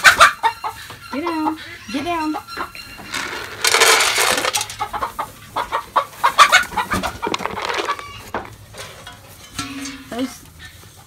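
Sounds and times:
hens squawking and clucking: 0.0 - 9.3
clatter: 3.1 - 4.8.

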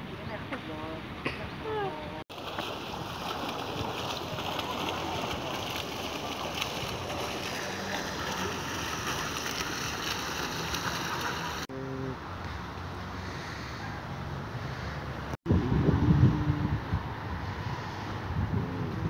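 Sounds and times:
fountain water splashing: 1.1 - 11.7.

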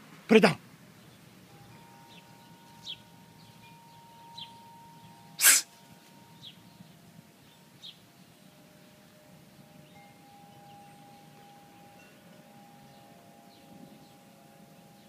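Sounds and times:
sharp burst of breath: 5.4 - 5.7.

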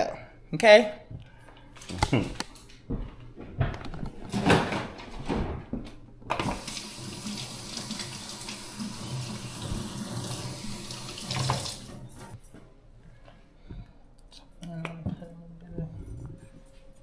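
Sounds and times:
tap water running into sink: 6.3 - 12.4.

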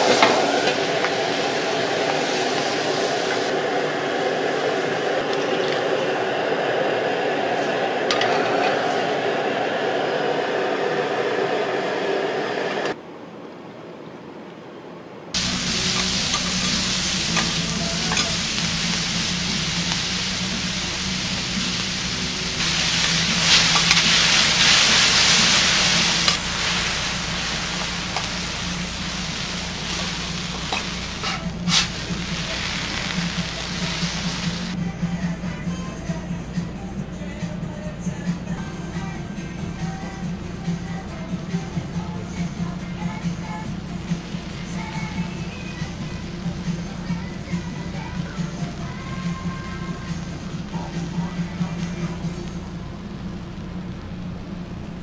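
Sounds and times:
food sizzling on a griddle: 0.0 - 5.8, 15.4 - 34.8, 43.0 - 52.6
steady low hum: 15.4 - 55.0.

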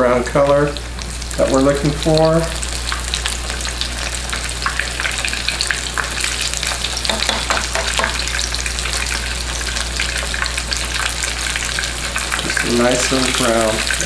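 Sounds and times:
chicken frying in hot oil: 0.0 - 14.0.

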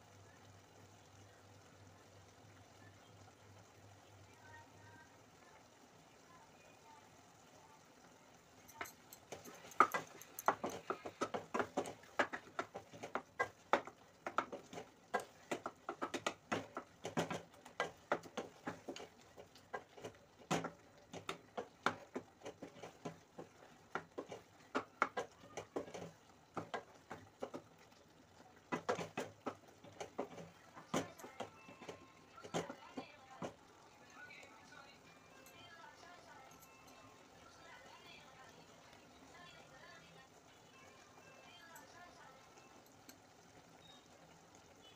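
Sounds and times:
wooden spatula scraping a pan: 9.3 - 28.0, 28.6 - 33.6.

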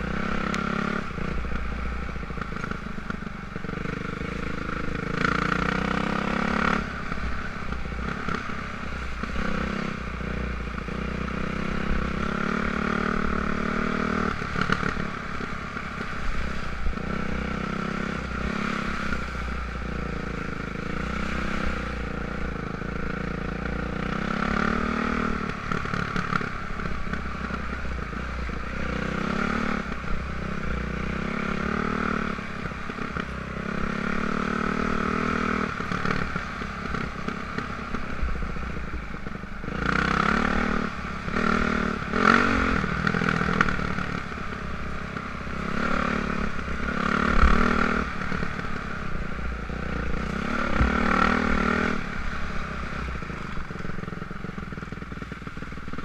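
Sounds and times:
dirt bike engine revving: 3.6 - 7.3, 16.1 - 38.5, 39.6 - 55.0.

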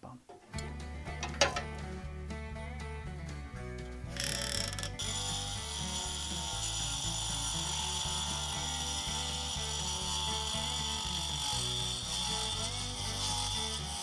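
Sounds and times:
background music with beat: 0.5 - 5.0
angle grinder cutting brick: 3.6 - 14.0.

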